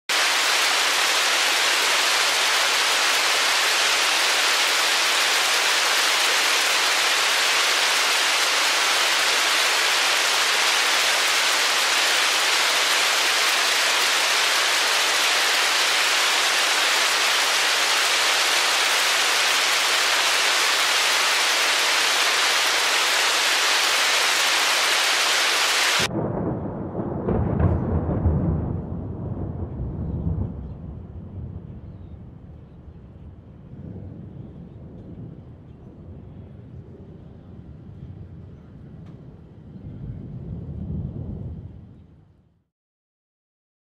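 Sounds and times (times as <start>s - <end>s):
hail pelting down: 0.1s - 26.1s
low uneven rumble: 30.4s - 42.1s.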